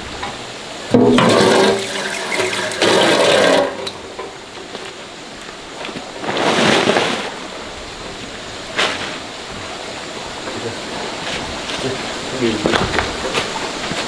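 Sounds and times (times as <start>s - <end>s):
tap water splashing into metal pot: 0.9s - 4.4s
plastic sack rustling: 5.7s - 14.0s.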